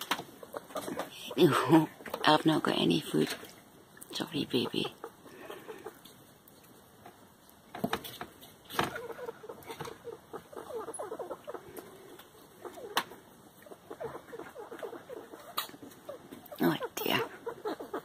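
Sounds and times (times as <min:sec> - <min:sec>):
rat wheezy crackly breathing: 0:05.0 - 0:06.3, 0:10.4 - 0:18.0.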